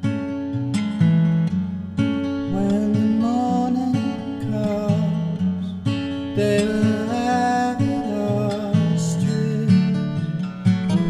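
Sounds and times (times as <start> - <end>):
acoustic guitar strumming: 0.0 - 11.0
held higher melody line: 2.5 - 11.0.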